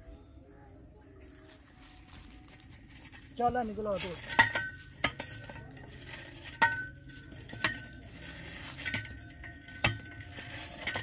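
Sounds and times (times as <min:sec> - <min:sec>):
metal clinking on iron pipe: 0:04.2 - 0:11.0.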